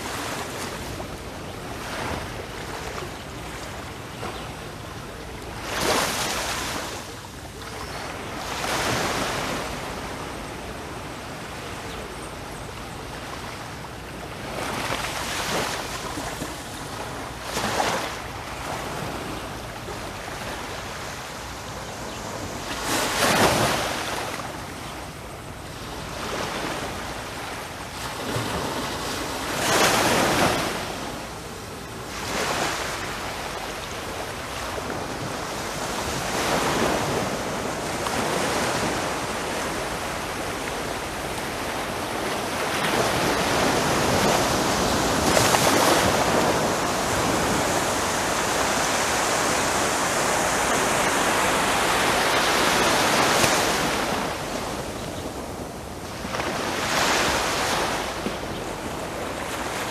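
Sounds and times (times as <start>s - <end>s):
small waves lapping on sand: 0.0s - 59.9s.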